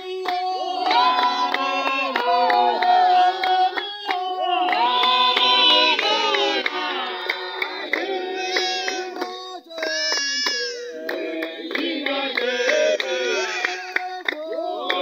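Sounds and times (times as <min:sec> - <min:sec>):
group singing a hymn: 0:00.0 - 0:09.8, 0:10.9 - 0:15.0
hand clapping: 0:00.0 - 0:15.0.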